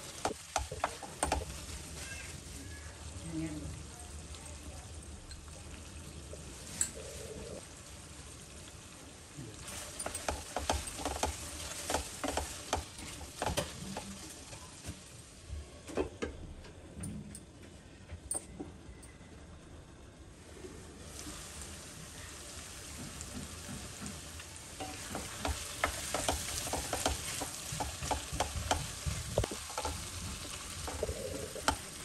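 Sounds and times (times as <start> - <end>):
spatula stirring and scraping: 0.0 - 3.2, 9.6 - 14.6, 22.9 - 32.0
curry sizzling: 0.0 - 15.5, 20.3 - 32.0.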